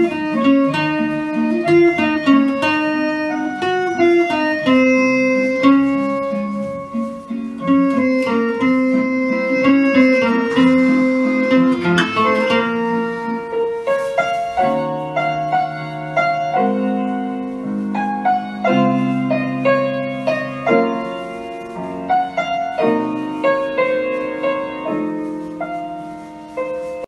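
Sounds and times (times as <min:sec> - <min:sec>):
fingerstyle acoustic guitar: 0:00.0 - 0:13.5.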